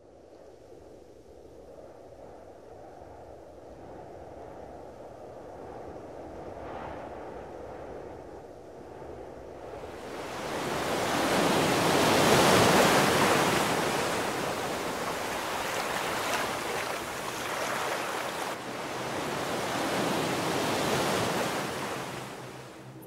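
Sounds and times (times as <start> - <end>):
sea waves washing in: 9.7 - 23.0.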